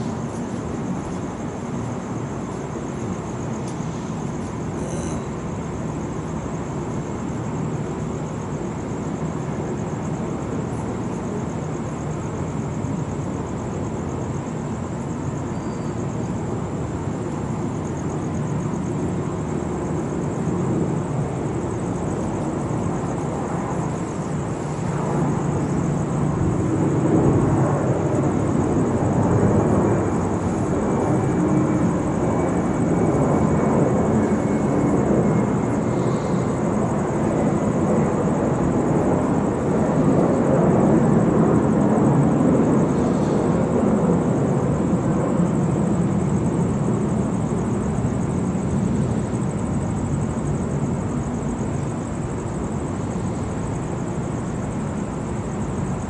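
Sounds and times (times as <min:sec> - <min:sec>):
airplane engine rumble: 0:00.0 - 0:56.0.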